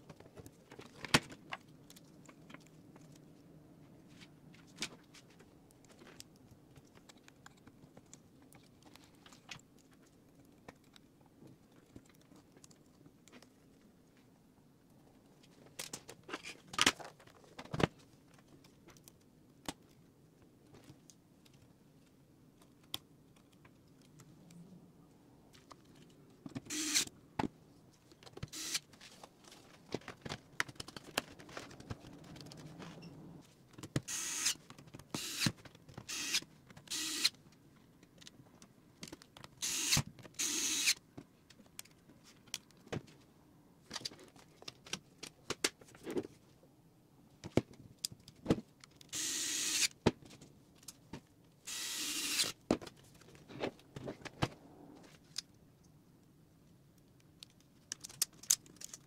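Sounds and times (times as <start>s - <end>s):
electric screwdriver whirring: 26.7s - 27.1s, 28.5s - 28.8s, 34.1s - 34.6s, 35.2s - 35.5s, 36.1s - 37.3s, 39.6s - 41.0s, 49.1s - 49.9s, 51.7s - 52.6s
clicks of screws and parts: 57.0s - 59.0s.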